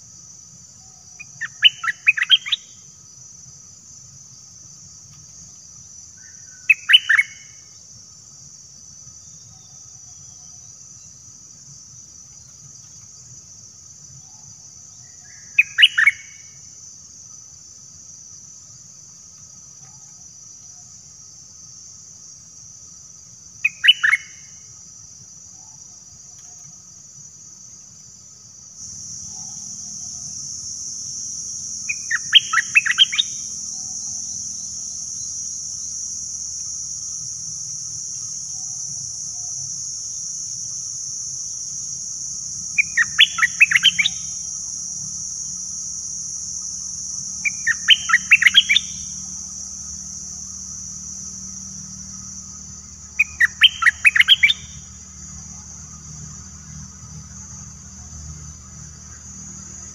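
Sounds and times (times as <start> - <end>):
steady high-pitched hiss: 0.0 - 59.9
bird chattering song: 1.2 - 2.6, 6.3 - 7.4, 15.3 - 16.2, 23.6 - 24.3, 31.9 - 34.8, 42.8 - 44.3, 47.4 - 49.0, 53.2 - 54.8.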